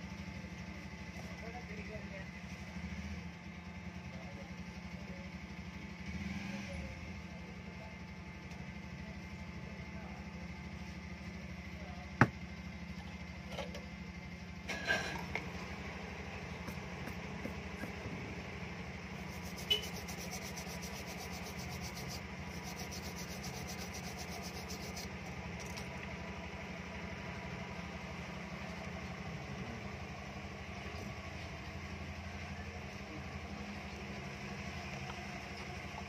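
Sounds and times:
steady low hum: 0:14.0 - 0:34.5
cotton swab scrubbing circuit board: 0:19.2 - 0:25.1.

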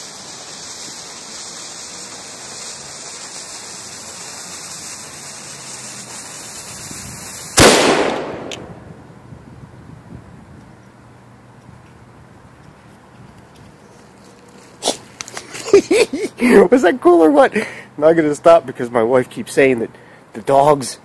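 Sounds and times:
fuse hissing: 0:00.0 - 0:08.6
cannon bang: 0:07.6 - 0:08.9.

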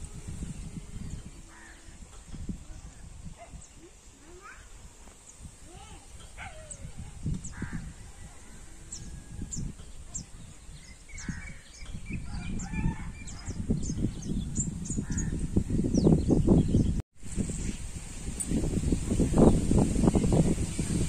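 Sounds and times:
birds chirping: 0:00.0 - 0:17.8
harsh bird calls: 0:10.6 - 0:16.9.

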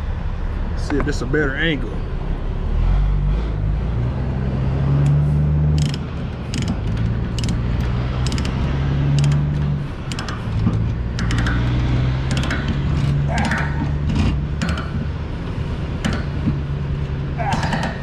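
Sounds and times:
low engine hum: 0:00.0 - 0:18.0
ratchet pawl clicking: 0:05.7 - 0:15.0.

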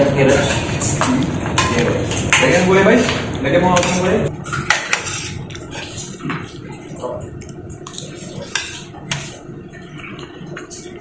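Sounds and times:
spoons scraping a cooking pot: 0:03.8 - 0:06.2, 0:07.9 - 0:09.5.

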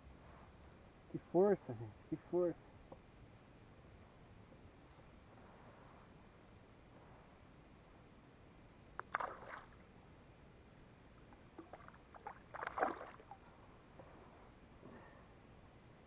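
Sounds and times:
fish splashing in water: 0:09.0 - 0:09.8, 0:11.5 - 0:13.4.

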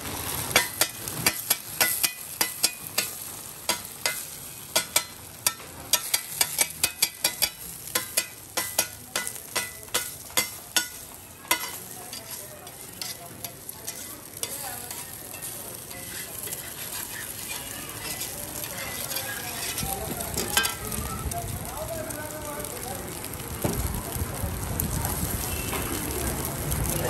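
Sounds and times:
eggs sizzling: 0:00.0 - 0:27.0
metal spatula scraping griddle: 0:00.2 - 0:21.0.

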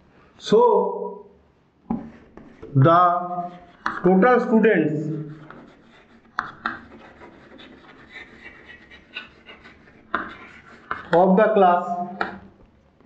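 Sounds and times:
chalk scratching on blackboard: 0:01.9 - 0:12.5
chalk tapping: 0:01.9 - 0:12.8.

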